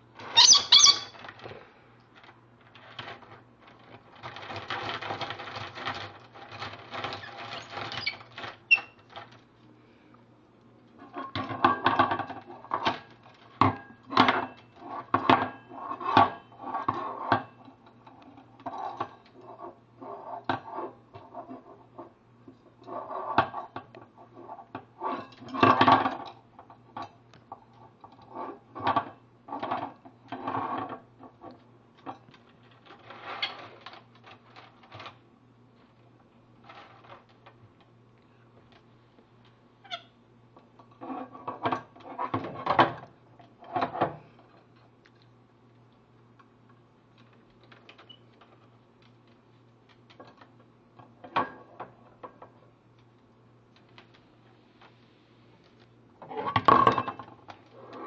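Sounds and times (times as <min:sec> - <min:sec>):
parrot chattering calls: 0:00.4 - 0:01.1.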